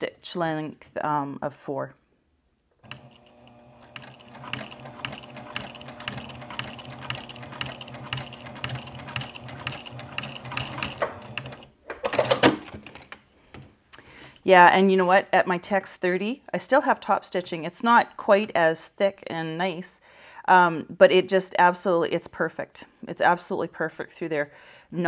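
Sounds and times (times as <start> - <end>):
sewing machine stitching: 2.8 - 12.7.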